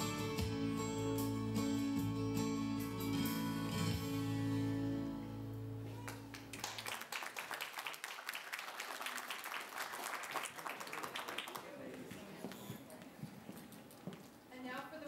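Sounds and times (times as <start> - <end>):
background guitar music: 0.0 - 6.5
small group clapping: 6.0 - 12.6.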